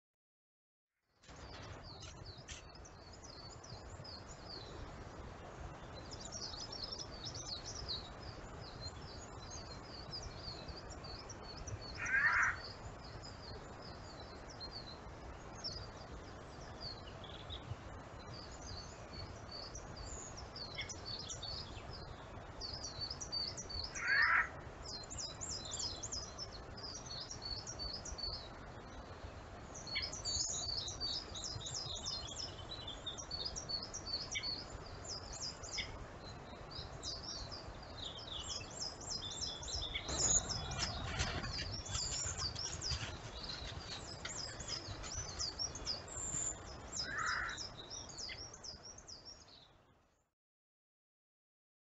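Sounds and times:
small birds chirping: 0:01.2 - 0:50.2
lower bird calls: 0:11.6 - 0:12.8, 0:22.8 - 0:28.4, 0:36.8 - 0:49.1.

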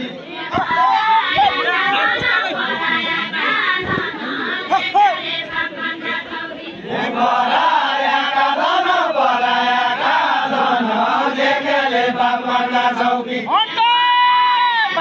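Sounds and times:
group singing in unison: 0:00.0 - 0:13.7.

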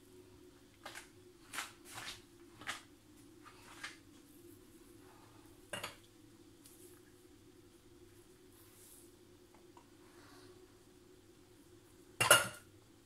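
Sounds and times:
steady low hum: 0:00.0 - 0:13.0
hands handling pastry dough: 0:00.8 - 0:04.7.

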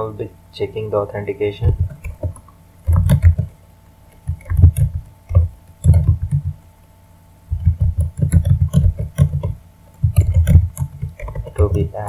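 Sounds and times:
typing on computer keyboard: 0:01.7 - 0:03.5, 0:04.1 - 0:06.6, 0:07.5 - 0:11.9.

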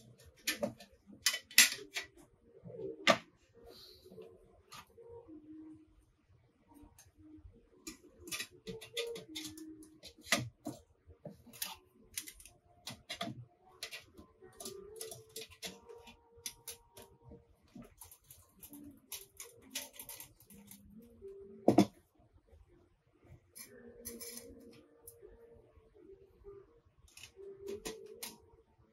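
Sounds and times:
metal panels clicking and clinking: 0:00.0 - 0:02.2.

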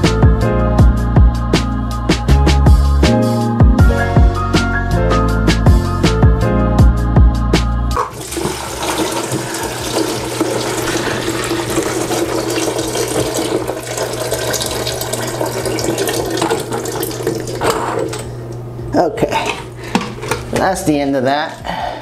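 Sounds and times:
water splashing into plastic tray: 0:08.0 - 0:17.6.

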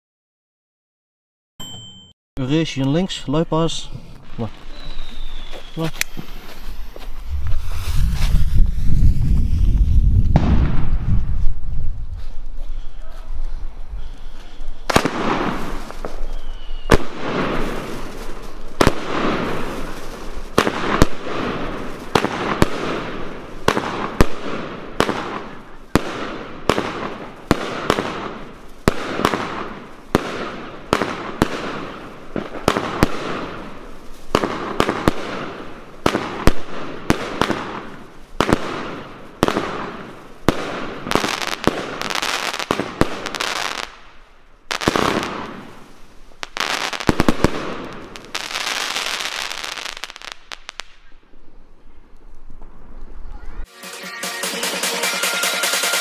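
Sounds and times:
fireworks bangs: 0:02.7 - 0:51.2
short rush of noise: 0:04.7 - 0:12.4.

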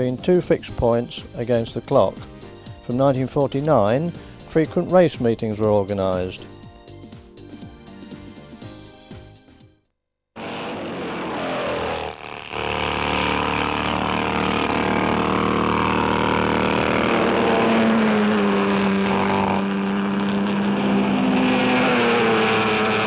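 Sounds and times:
racing car engines: 0:10.4 - 0:23.0.

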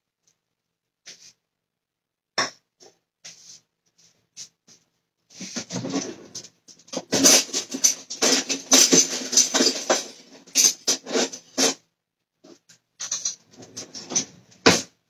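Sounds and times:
pots and pans clattering: 0:05.6 - 0:11.8, 0:13.0 - 0:14.9.

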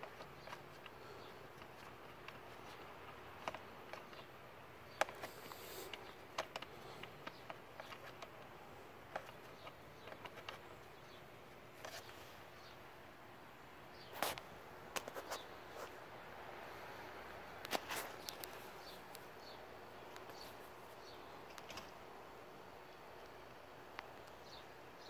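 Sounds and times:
scratchy rustle: 0:00.0 - 0:10.8
hand rummaging in plastic airbox: 0:00.0 - 0:11.1.

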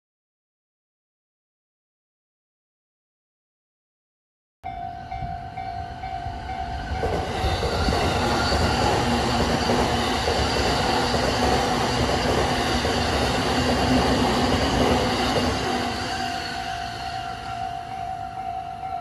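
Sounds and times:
level-crossing warning bell ringing: 0:04.6 - 0:19.0
electric train passing: 0:04.7 - 0:19.0.

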